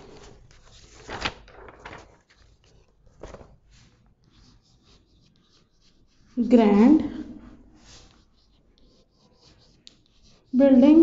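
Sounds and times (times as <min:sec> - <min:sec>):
chalk scratching on chalkboard: 0:03.7 - 0:11.0.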